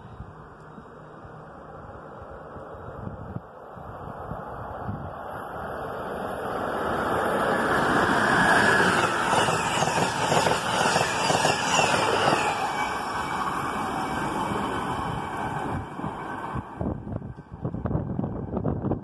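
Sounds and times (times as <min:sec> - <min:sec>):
train rushing past: 0:03.8 - 0:19.0.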